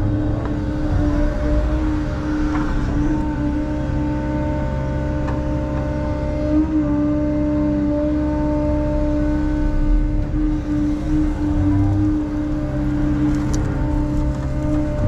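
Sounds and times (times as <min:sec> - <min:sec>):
excavator diesel engine and hydraulics: 0:00.0 - 0:15.0
steady whine: 0:00.0 - 0:15.0.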